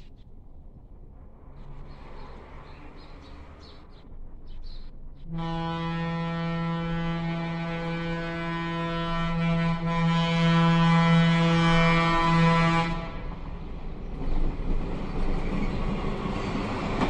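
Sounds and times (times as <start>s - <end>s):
birds chirping: 1.5s - 5.4s
train air horn blast: 5.2s - 13.4s.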